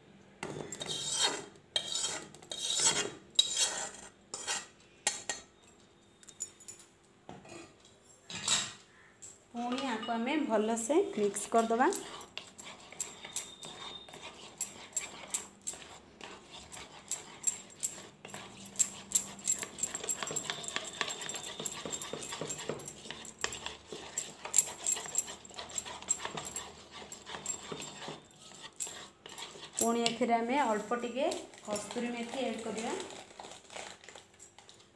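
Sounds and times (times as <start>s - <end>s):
plastic spoon scraping a bowl: 0.4s - 4.7s, 11.2s - 34.2s.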